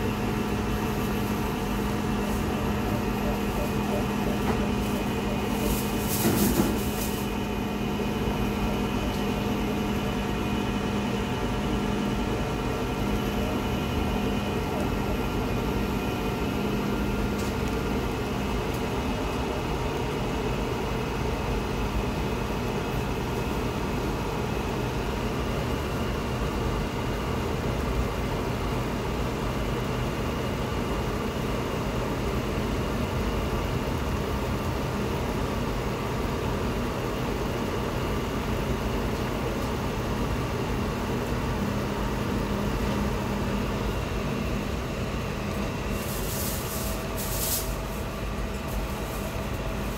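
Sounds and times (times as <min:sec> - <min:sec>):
electrical hum with fan noise: 0:00.0 - 0:49.9.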